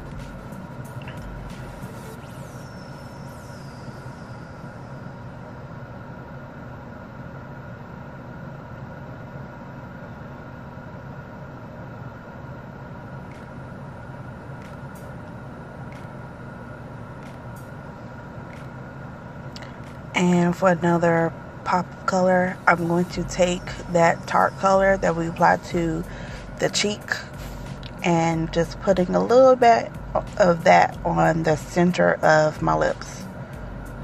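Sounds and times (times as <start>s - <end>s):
steady hum: 0.0s - 34.0s.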